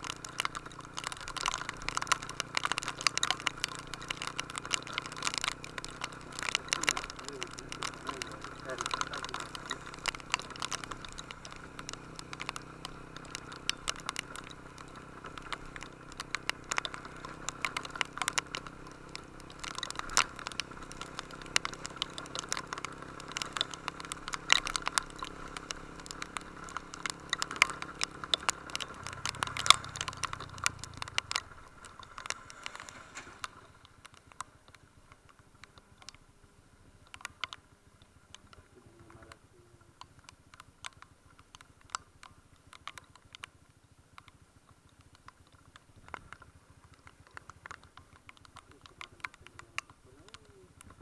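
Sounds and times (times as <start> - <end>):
single-cylinder engine running: 0.0 - 33.6
raindrops pattering on microphone: 0.0 - 51.0.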